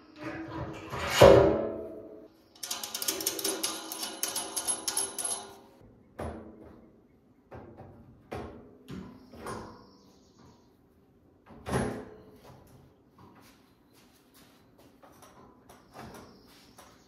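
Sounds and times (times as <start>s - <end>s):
rapid metallic clicking and rattling: 2.6s - 5.8s.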